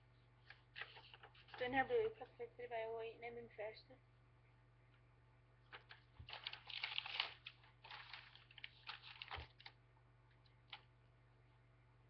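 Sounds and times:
paper rustling and crackling: 0:00.4 - 0:02.2, 0:05.7 - 0:09.8.

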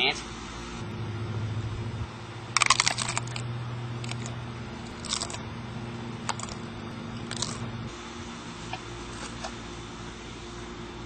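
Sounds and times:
taco shell crunching: 0:02.5 - 0:05.4, 0:06.2 - 0:06.6, 0:07.2 - 0:07.6.

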